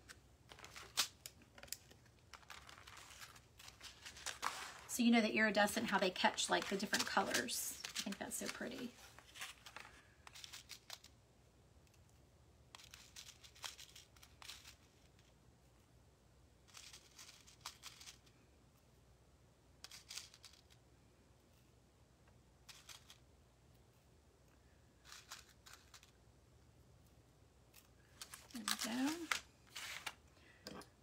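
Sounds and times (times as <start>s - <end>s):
sequins clicking and rustling: 0.0s - 11.2s, 12.7s - 15.3s, 16.6s - 18.4s, 19.8s - 20.8s, 22.6s - 23.2s, 24.5s - 26.2s, 27.7s - 30.8s
low room hum: 0.0s - 31.0s.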